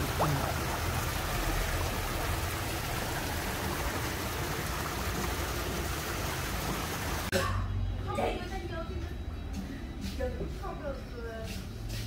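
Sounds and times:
waterfall splashing into pond: 0.0 - 7.3.

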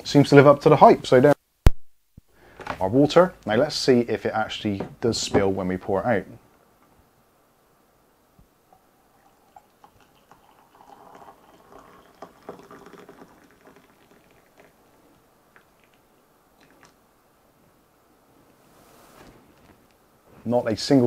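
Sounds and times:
water pouring into a ceramic mug: 8.7 - 17.0.

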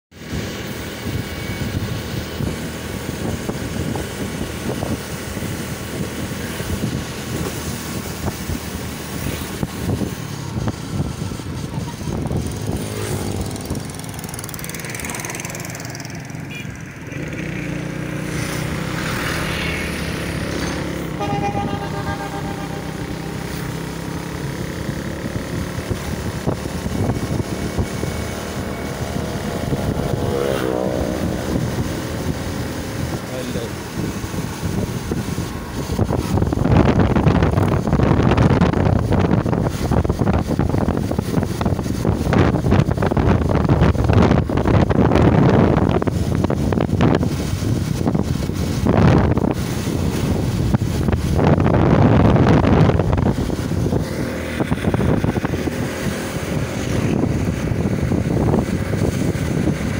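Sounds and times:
motorcycle engine at speed: 0.1 - 59.9
wind rushing over microphone: 0.1 - 59.9.

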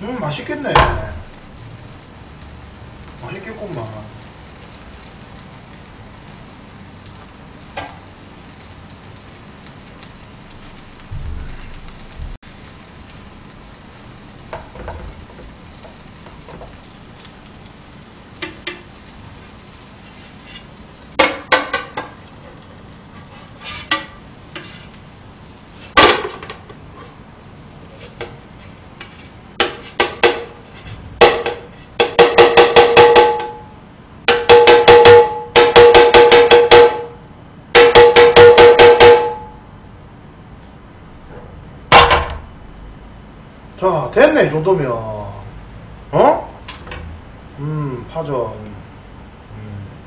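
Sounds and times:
spatula knocking frying pan: 18.4 - 18.9, 21.2 - 22.2, 23.6 - 24.8, 26.0 - 26.7, 29.0 - 33.7, 34.3 - 37.2, 37.8 - 39.6, 41.9 - 42.4
spatula scraping frying pan: 18.4 - 25.1, 27.8 - 33.3
pan ringing: 30.2 - 37.2, 37.8 - 39.7.

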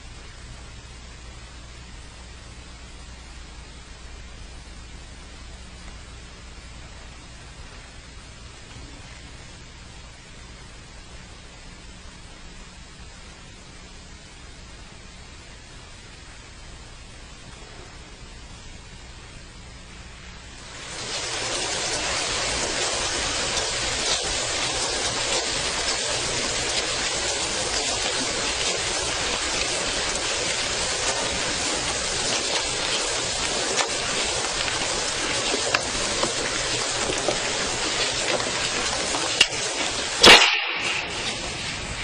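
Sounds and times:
sharp crack: 20.7 - 42.0.

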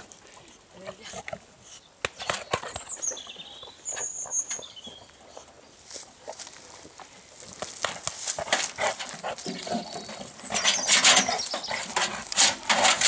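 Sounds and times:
dog scraping in a wheelbarrow: 8.3 - 13.0.

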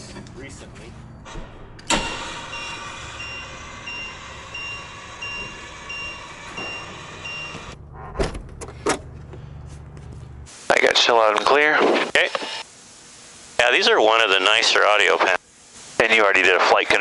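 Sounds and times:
warning beeper: 1.1 - 8.2
hangar door motor running: 1.1 - 10.5
door latch clunks: 7.6 - 9.0.

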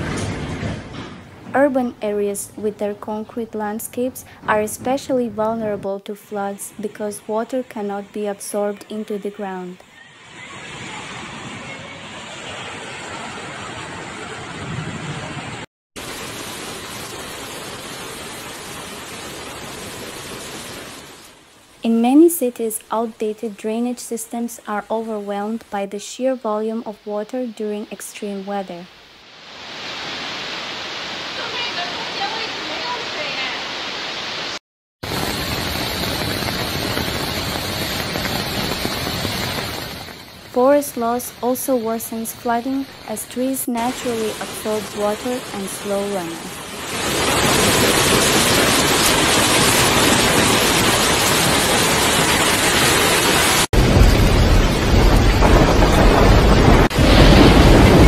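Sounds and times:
floodwater rushing: 9.8 - 21.6, 29.2 - 58.0.

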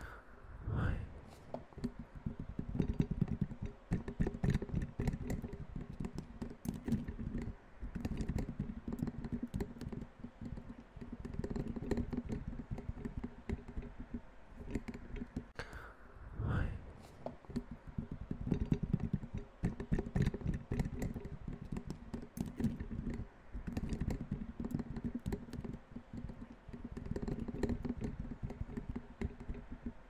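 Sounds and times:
rapid irregular tapping: 1.5 - 15.6, 17.0 - 30.0.

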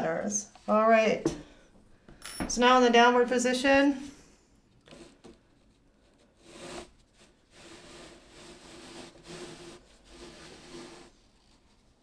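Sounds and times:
hands rubbing yarn on loom: 4.9 - 12.0.

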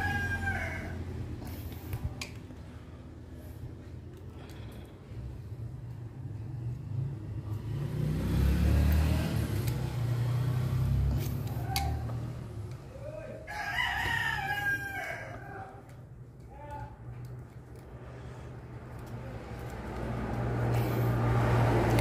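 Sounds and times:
rooster crowing: 0.0 - 1.2, 13.4 - 15.8.

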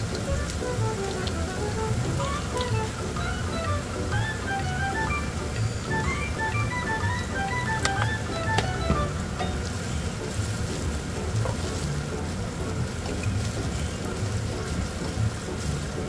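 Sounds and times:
food sizzling in a frying pan: 9.3 - 16.0.

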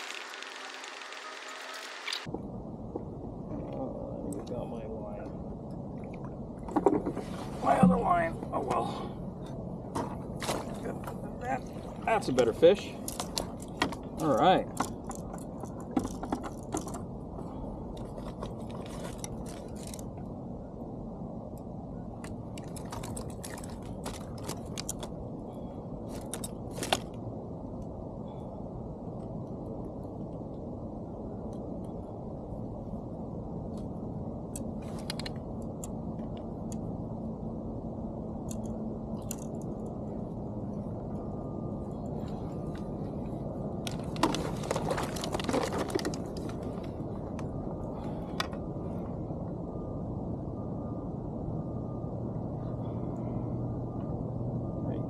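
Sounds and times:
steady low rumble: 0.0 - 55.0
sharp clicks and crackles: 34.5 - 36.9.

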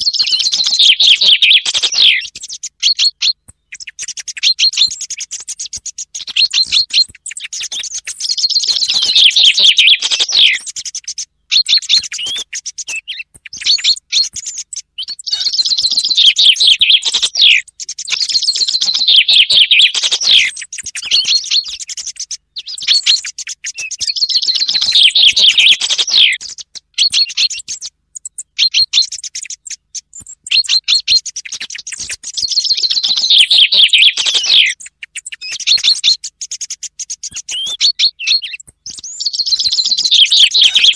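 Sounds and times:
finch song falling trills: 0.0 - 40.9.

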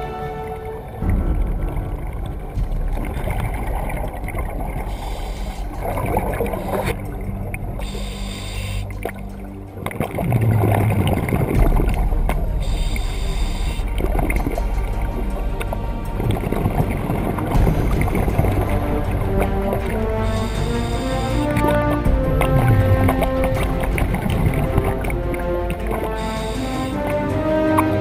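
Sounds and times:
gurgle of exhaled bubbles: 1.0 - 26.2
hissing regulator inhalations: 4.8 - 7.0, 7.8 - 9.1, 12.6 - 14.0, 20.0 - 21.9, 25.8 - 27.3.

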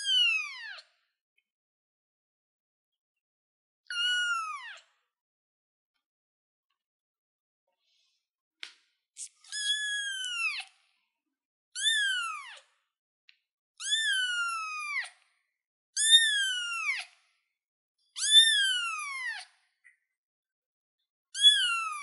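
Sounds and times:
kitten meowing: 3.9 - 4.8, 9.5 - 10.6, 11.8 - 12.6, 13.8 - 15.1, 16.0 - 17.0, 18.2 - 19.4, 21.4 - 22.0.

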